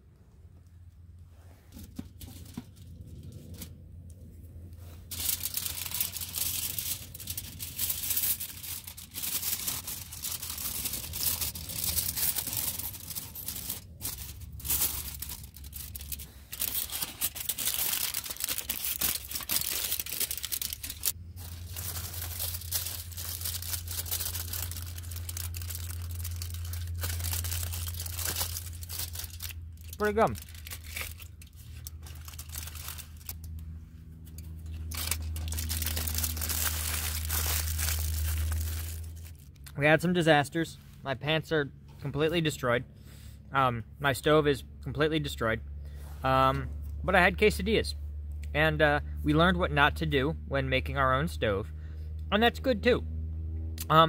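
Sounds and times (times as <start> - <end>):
aluminium foil crinkling: 5.0 - 39.6.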